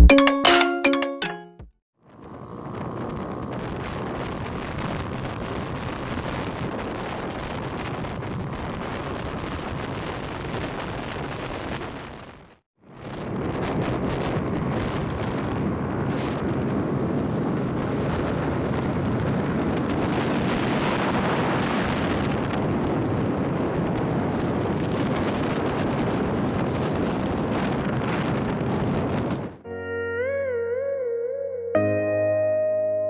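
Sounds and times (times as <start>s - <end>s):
wind buffeting microphone: 13.0s - 29.6s.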